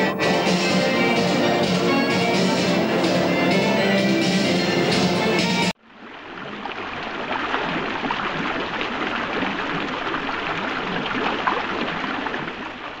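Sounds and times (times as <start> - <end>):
running splashing water: 6.0 - 13.0.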